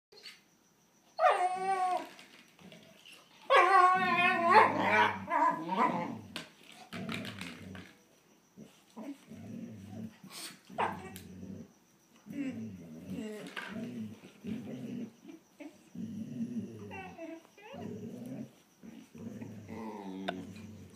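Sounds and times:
dogs yelping: 1.2s - 2.2s, 3.4s - 6.1s.

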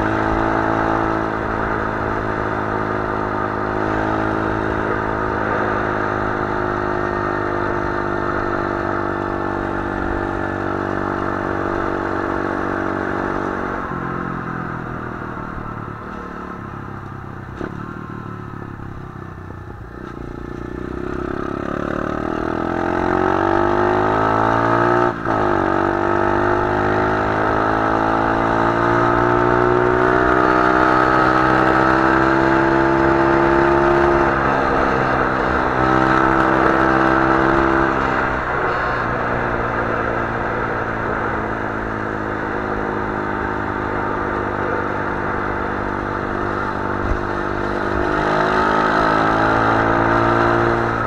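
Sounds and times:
pit bike engine revving: 20.5s - 51.0s.

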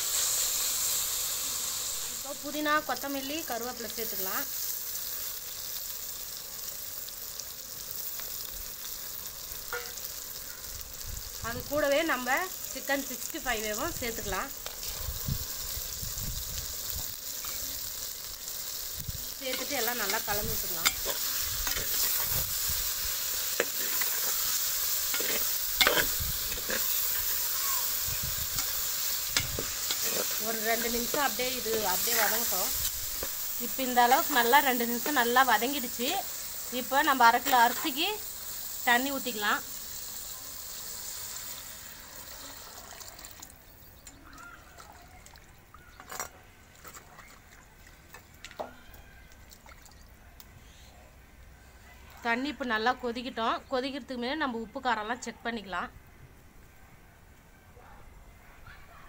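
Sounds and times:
frying sizzle: 0.0s - 44.7s
water pouring into pot: 37.9s - 43.6s.

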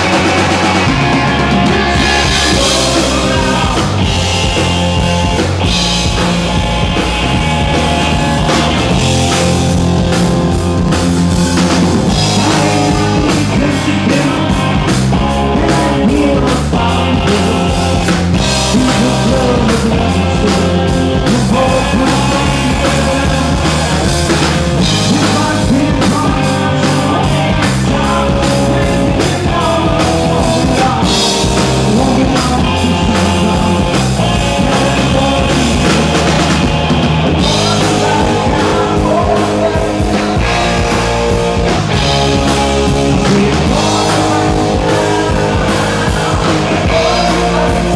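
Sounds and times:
drum kit beat: 0.0s - 47.9s
rock band playing live: 0.0s - 47.9s.

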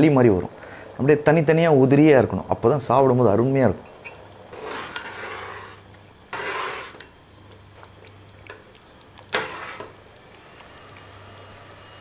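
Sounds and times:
metal ladle scraping pot: 4.5s - 7.2s, 9.3s - 10.0s.

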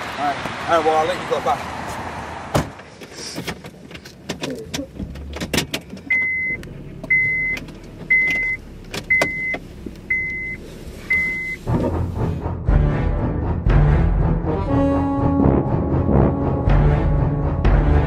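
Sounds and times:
car warning chime beeping: 6.1s - 11.7s.

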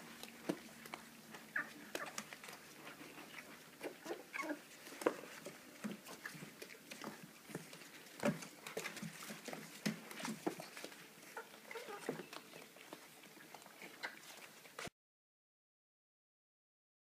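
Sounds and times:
puppies chewing and lapping: 0.0s - 14.9s
puppy squeaks: 4.0s - 4.6s.

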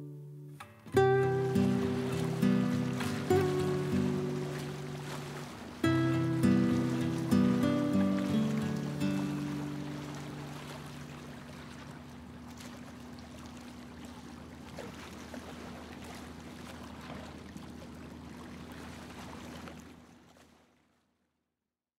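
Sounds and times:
background music: 0.0s - 5.0s, 5.8s - 10.0s
wind: 0.0s - 21.3s
lake water: 0.0s - 21.4s.

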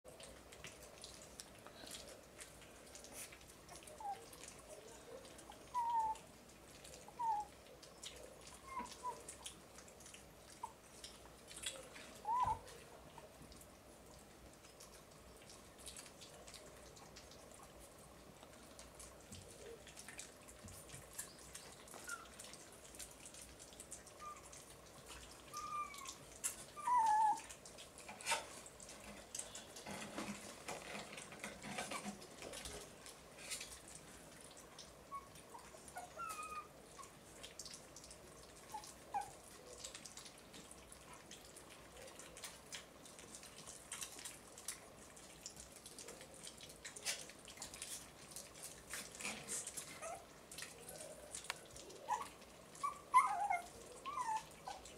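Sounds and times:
puppies lapping wet food: 0.0s - 54.9s
puppy squeaking or whimpering: 5.5s - 6.2s, 7.1s - 7.6s, 8.5s - 9.4s, 12.1s - 12.8s, 24.2s - 24.6s, 25.5s - 27.5s, 35.1s - 37.1s, 49.6s - 50.3s, 52.0s - 54.9s.

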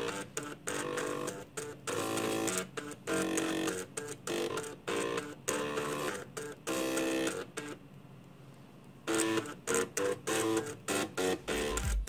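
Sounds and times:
floppy drive motors buzzing a tune: 0.0s - 7.8s, 9.1s - 12.0s
deep bass music: 11.5s - 12.0s.

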